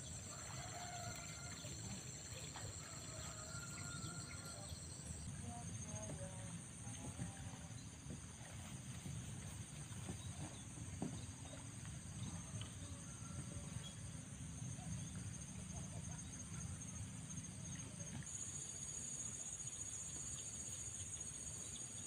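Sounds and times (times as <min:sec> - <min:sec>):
insects pulsing trill: 0:00.0 - 0:06.6, 0:08.5 - 0:22.0.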